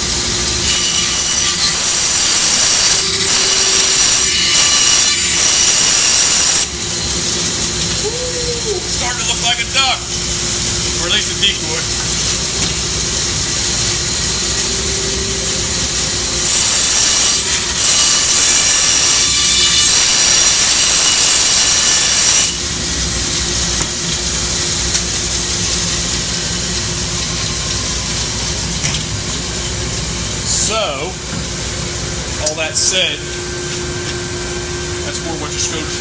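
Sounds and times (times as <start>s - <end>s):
bandsaw humming: 0.0s - 26.8s
bandsaw blade cutting: 0.6s - 6.7s, 12.0s - 22.6s.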